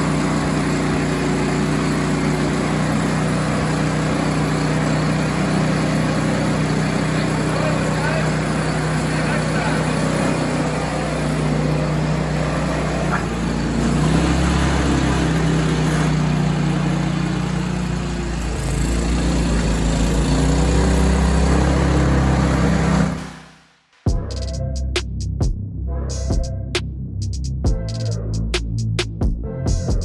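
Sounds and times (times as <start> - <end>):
snowblower engine running: 0.0 - 23.6
music: 23.3 - 30.0.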